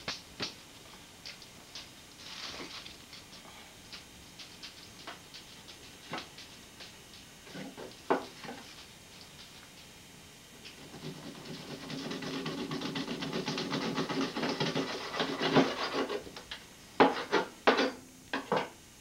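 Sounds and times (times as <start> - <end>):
knife sawing through meat and bone: 10.9 - 16.2.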